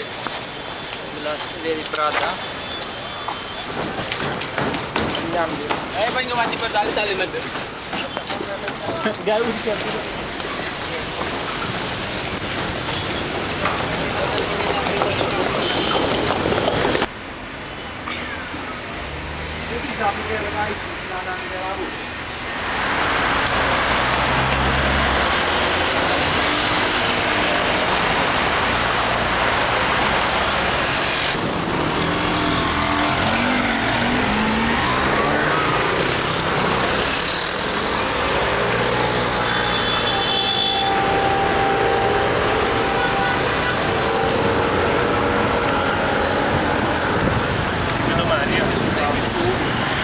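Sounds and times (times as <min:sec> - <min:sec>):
cars passing: 0:00.0 - 0:50.0
brief high tone: 0:39.6 - 0:44.8.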